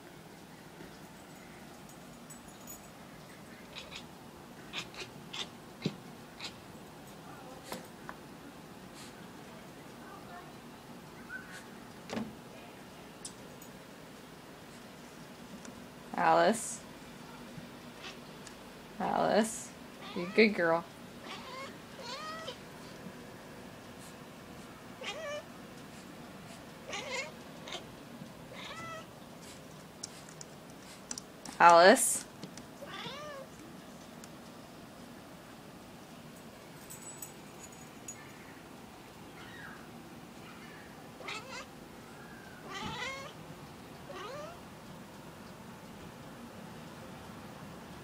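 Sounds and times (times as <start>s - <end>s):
cat meowing: 3.7s - 4.1s, 21.2s - 22.6s, 25.0s - 25.4s, 26.9s - 27.8s, 28.5s - 29.1s, 32.8s - 33.5s, 41.2s - 41.7s, 42.6s - 43.4s, 44.1s - 44.6s.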